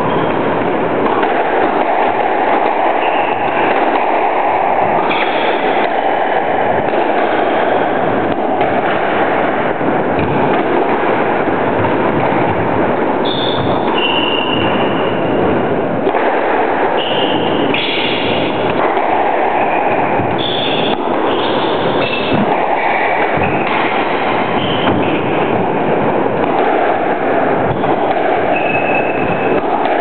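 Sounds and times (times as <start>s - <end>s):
loud rushing noise: 0.0s - 30.0s
ball and racket knocks: 10.1s - 11.1s
shoes squeaking on wooden floor: 24.3s - 25.4s.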